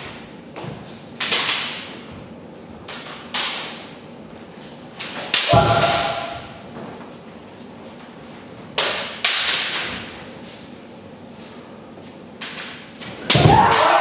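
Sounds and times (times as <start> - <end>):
sharp sparring impacts: 13.2 - 14.0
person shouting: 13.5 - 14.0.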